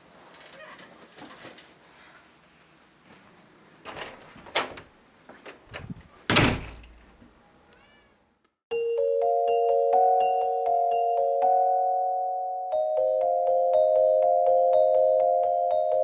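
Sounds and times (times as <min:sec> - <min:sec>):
door slamming: 0:05.7 - 0:07.0.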